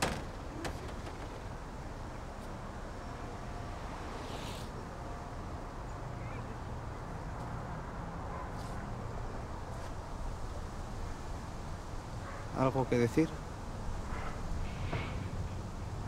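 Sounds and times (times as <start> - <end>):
city street rumble: 0.0 - 16.0
soft hiss: 2.3 - 6.0.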